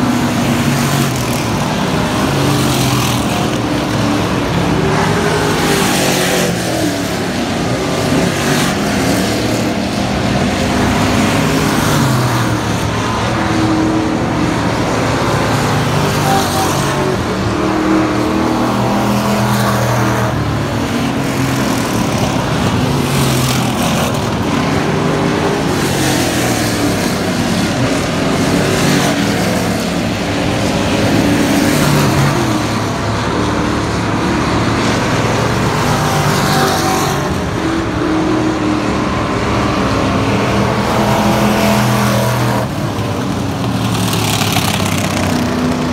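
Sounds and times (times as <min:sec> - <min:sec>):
race car engines revving: 0:00.0 - 0:45.9.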